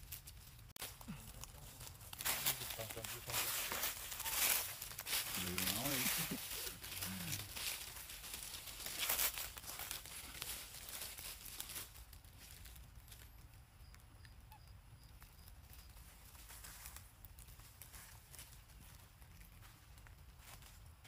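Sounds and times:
dry leaves rustling: 0.0s - 13.7s, 15.2s - 21.0s
faint high peeping: 3.8s - 4.8s.

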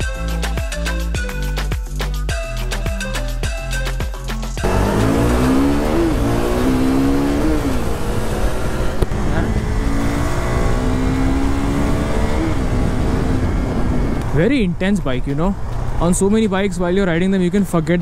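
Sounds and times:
motorcycle engine accelerating: 4.6s - 14.4s
wind rush on microphone: 8.1s - 17.2s.

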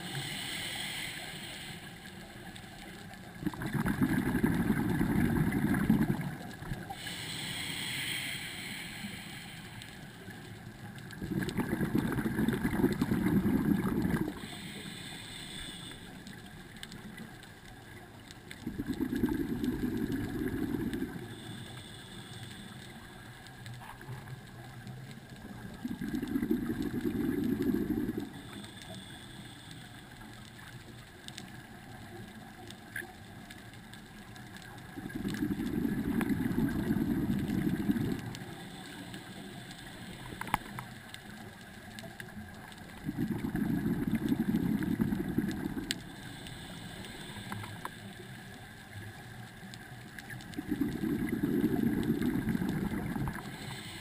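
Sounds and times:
hissing inhalation: 0.0s - 2.4s, 6.8s - 10.3s, 11.2s - 16.5s, 18.7s - 23.2s, 35.1s - 40.9s, 43.0s - 48.3s, 50.6s - 54.0s
scuba regulator bubbling exhalations: 3.4s - 9.0s, 11.0s - 15.6s, 18.6s - 21.5s, 25.6s - 28.5s, 34.9s - 38.7s, 42.7s - 47.9s, 50.4s - 54.0s.

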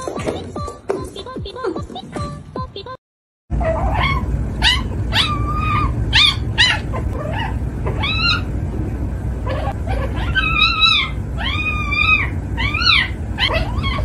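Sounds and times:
kitten meowing: 9.5s - 14.0s.

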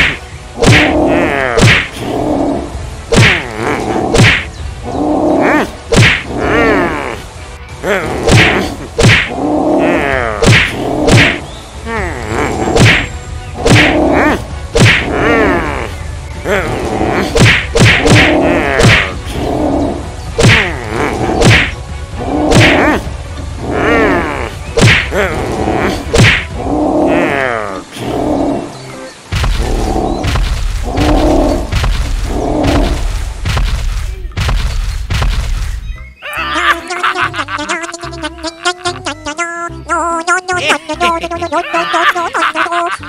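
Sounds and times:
cartoon whacks and thuds: 0.0s - 1.0s, 1.6s - 1.9s, 3.1s - 3.4s, 4.1s - 4.5s, 5.9s - 6.3s, 8.2s - 9.3s, 10.4s - 11.4s, 12.8s - 13.0s, 13.6s - 14.0s, 14.8s - 15.1s, 17.4s - 19.2s, 20.4s - 20.7s, 21.4s - 21.8s, 22.5s - 22.8s, 24.8s - 25.1s, 26.1s - 26.5s, 31.7s - 35.8s.

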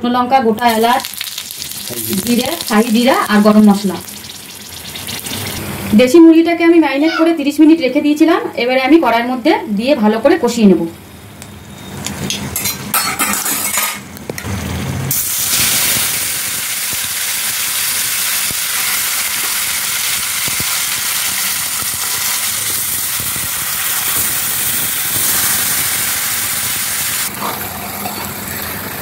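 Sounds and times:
chicken sizzling in hot oil: 0.7s - 5.6s, 15.1s - 29.0s.

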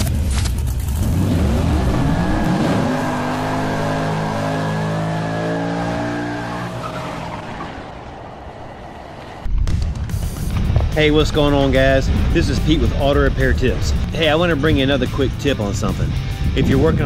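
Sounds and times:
car engine revving: 0.0s - 9.5s.

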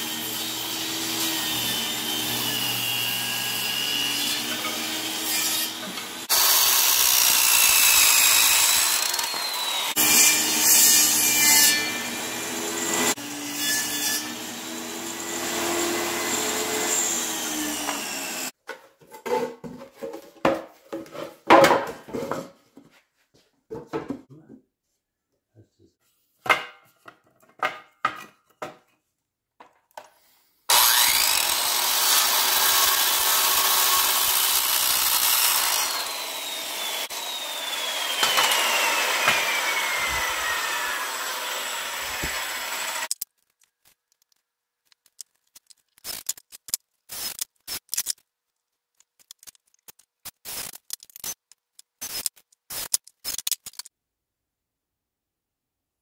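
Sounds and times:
power saw cutting wood: 0.0s - 18.5s, 30.7s - 43.1s.

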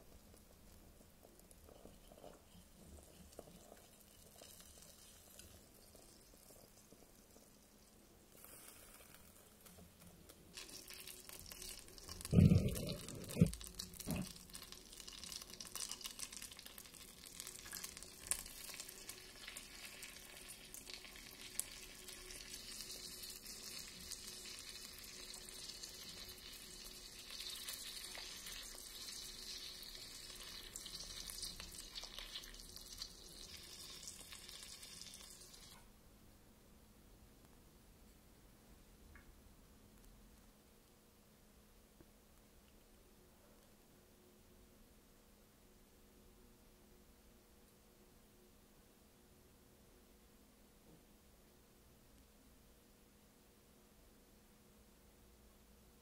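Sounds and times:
butter sizzling in a pan: 0.2s - 35.8s.

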